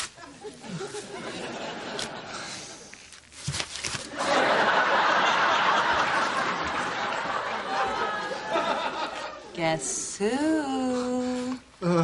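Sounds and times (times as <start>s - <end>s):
studio audience laughing: 0.2s - 2.6s, 4.1s - 9.6s.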